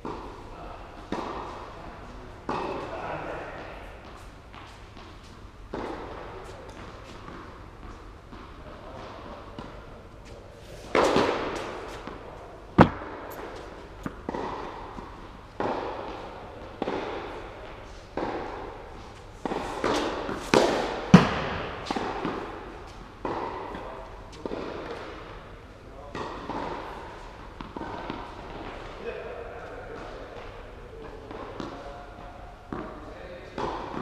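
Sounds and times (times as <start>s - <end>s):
tennis balls bouncing on court: 3.6s - 9.8s, 10.9s - 25.5s, 26.1s - 29.0s, 31.3s - 31.8s, 32.7s - 34.0s
tennis balls struck by rackets: 10.8s - 28.9s, 32.7s - 34.0s.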